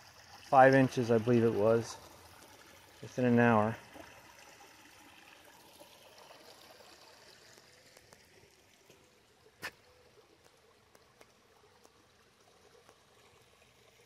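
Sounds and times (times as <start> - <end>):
water trickling over stones: 0.0 - 14.0.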